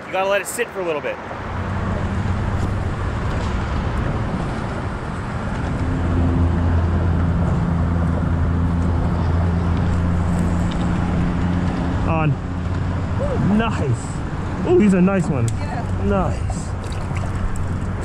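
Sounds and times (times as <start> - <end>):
traffic rumbling on bridge: 0.0 - 18.0
low engine hum: 1.2 - 18.0.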